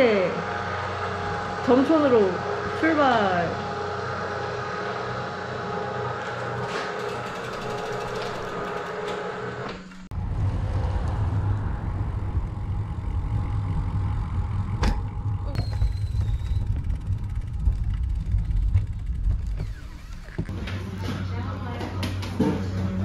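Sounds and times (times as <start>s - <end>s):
road rumble: 0.0s - 23.0s
steady multi-tone hum: 0.0s - 23.0s.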